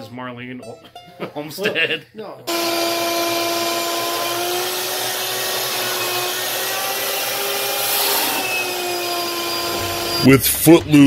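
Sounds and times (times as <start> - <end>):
wet vacuum whining: 2.5 - 10.4.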